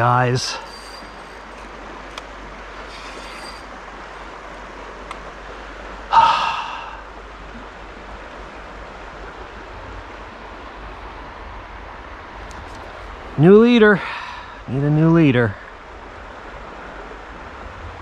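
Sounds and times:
creek water rushing: 0:00.0 - 0:18.0
man sighing: 0:06.1 - 0:07.1, 0:14.0 - 0:14.6.

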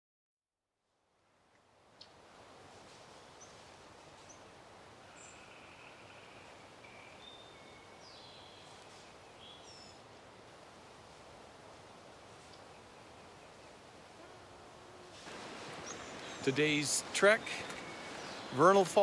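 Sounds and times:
faint outdoor hiss: 0:00.7 - 0:19.0
birds chirping: 0:03.2 - 0:10.6, 0:12.4 - 0:19.0.

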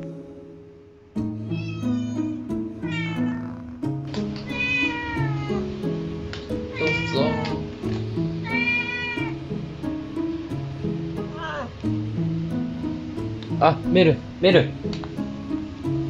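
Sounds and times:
light background music: 0:00.0 - 0:16.0
cats meowing: 0:01.4 - 0:05.7, 0:06.6 - 0:09.4, 0:11.2 - 0:11.9.

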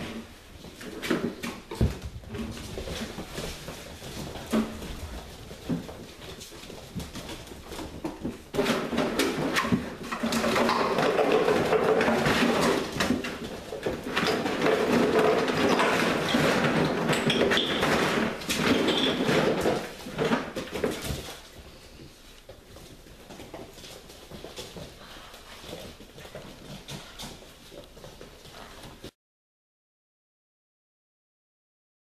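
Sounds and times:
plastic toys clattering on tile: 0:04.2 - 0:22.1.

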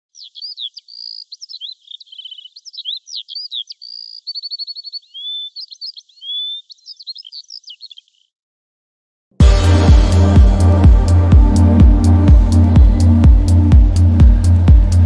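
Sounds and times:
songbird singing: 0:00.0 - 0:08.4.

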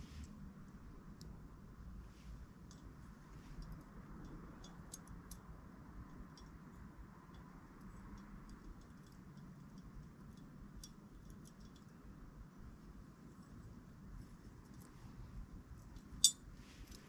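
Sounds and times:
quiet steady hiss: 0:00.0 - 0:17.0
small clicks and taps of handling: 0:02.6 - 0:02.9, 0:07.3 - 0:12.0.

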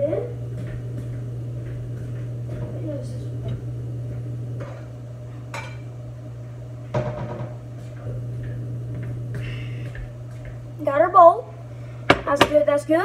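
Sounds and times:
steady low hum: 0:00.0 - 0:13.0
dishes clinking: 0:05.5 - 0:05.9.

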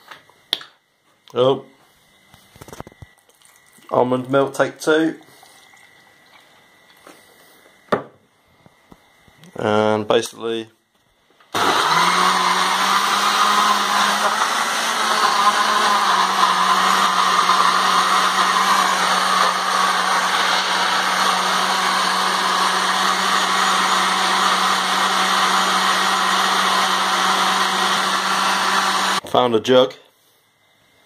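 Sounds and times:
blender motor whirring: 0:11.5 - 0:29.2.

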